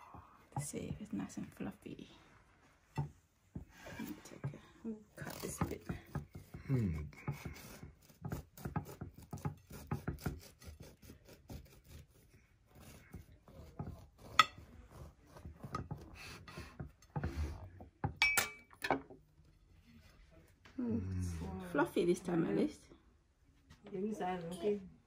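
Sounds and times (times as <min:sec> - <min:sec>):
bread knife sawing through crust: 0:05.2 - 0:16.8.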